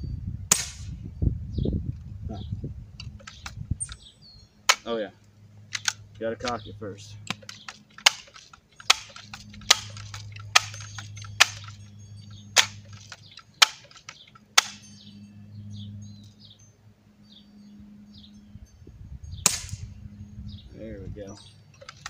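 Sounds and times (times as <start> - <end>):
air rifle lever clicks: 3.0 - 4.1, 5.7 - 6.6, 7.3 - 11.8, 12.6 - 14.8, 21.8 - 22.0.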